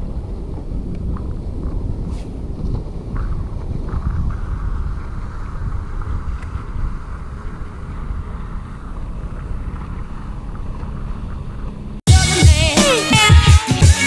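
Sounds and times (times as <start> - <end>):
wind buffeting microphone: 0.0 - 12.0
loud music: 12.1 - 14.0.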